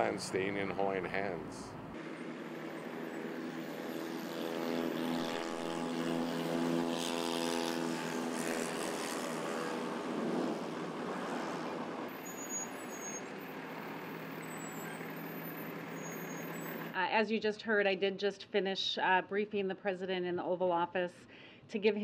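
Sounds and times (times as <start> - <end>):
road traffic: 0.0 - 17.0.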